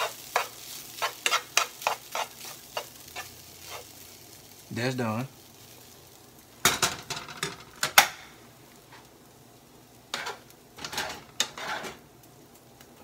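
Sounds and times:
spoon scraping frying pan: 0:00.0 - 0:04.0, 0:10.1 - 0:12.0.

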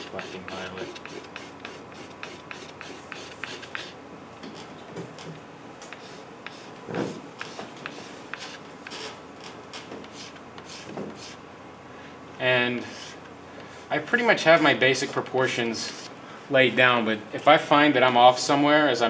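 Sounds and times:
pastel scratching on paper: 0:00.0 - 0:04.0, 0:05.9 - 0:08.6, 0:10.1 - 0:11.4, 0:12.9 - 0:13.2.

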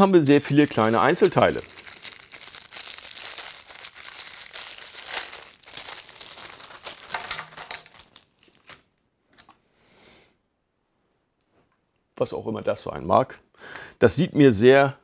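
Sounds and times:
paper wrapper crinkling: 0:00.0 - 0:09.0.

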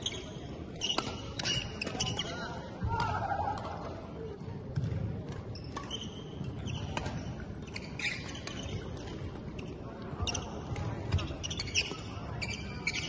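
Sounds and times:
rackets striking shuttlecock: 0:00.7 - 0:04.0, 0:04.7 - 0:09.6
shoes squeaking on wooden floor: 0:07.6 - 0:08.8, 0:09.6 - 0:13.0.

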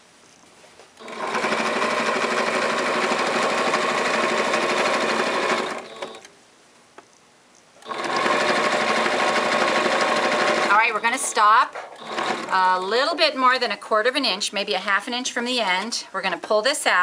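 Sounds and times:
electric sewing machine stitching: 0:01.0 - 0:06.3, 0:07.8 - 0:12.9.

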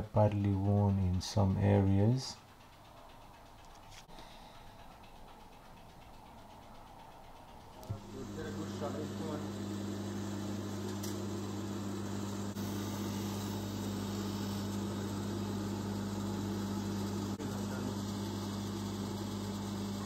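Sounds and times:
polishing motor humming: 0:07.9 - 0:20.0.

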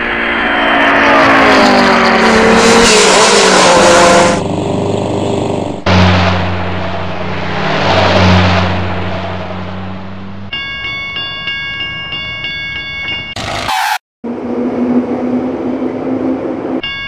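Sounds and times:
race car engine revving past: 0:00.0 - 0:10.5
truck engine low drone: 0:00.0 - 0:10.6, 0:13.3 - 0:16.9.

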